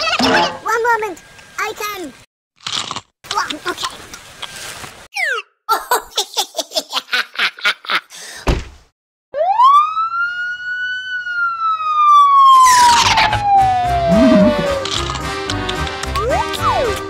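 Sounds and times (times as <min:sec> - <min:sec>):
thump: 0:08.4 - 0:08.8
police siren wail: 0:09.4 - 0:15.0.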